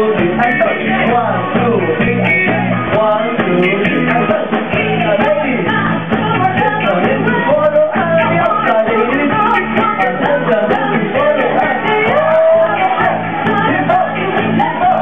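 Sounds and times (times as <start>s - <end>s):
dance music: 0.0s - 15.0s
person singing: 0.0s - 15.0s
steady bass beat: 0.0s - 15.0s.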